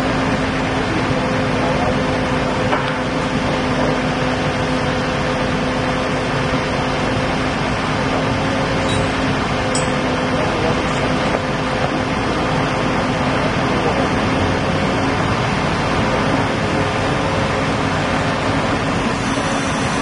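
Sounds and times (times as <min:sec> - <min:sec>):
heavy diesel engine droning: 0:00.0 - 0:20.0.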